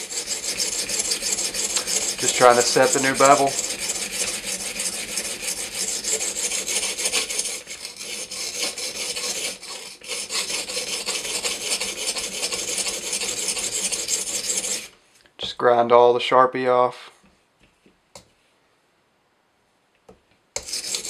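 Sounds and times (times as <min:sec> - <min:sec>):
sharpening stone rasping on knife: 0:00.0 - 0:14.9, 0:20.6 - 0:21.0.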